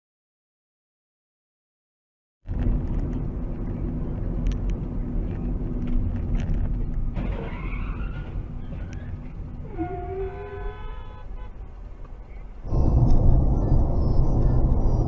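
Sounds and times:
car engine and road rumble: 0:02.5 - 0:15.0
tyres skidding: 0:04.6 - 0:13.7.

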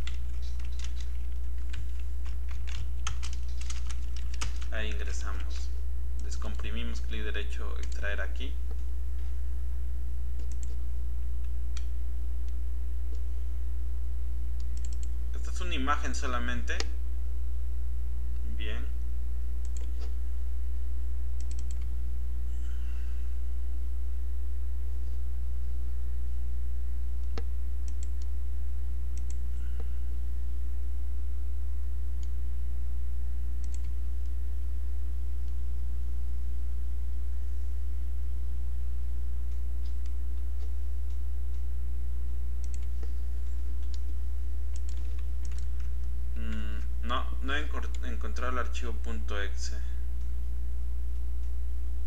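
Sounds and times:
low electrical hum: 0:00.0 - 0:52.0
computer mouse clicks: 0:10.4 - 0:10.8, 0:14.6 - 0:15.1, 0:19.6 - 0:20.1, 0:21.4 - 0:21.9, 0:27.2 - 0:28.3, 0:29.2 - 0:29.9, 0:33.6 - 0:33.9, 0:42.6 - 0:44.1, 0:44.7 - 0:45.9.

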